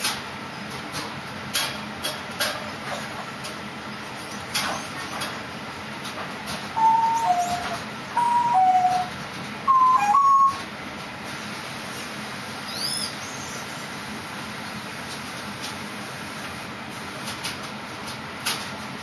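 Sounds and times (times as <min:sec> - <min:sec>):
two-note whistled call: 0:06.8 - 0:09.1, 0:09.7 - 0:10.6.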